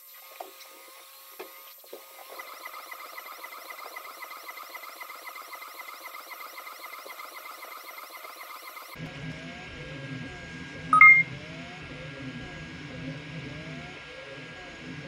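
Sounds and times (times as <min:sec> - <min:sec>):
stepper motors whining: 0:00.0 - 0:09.0.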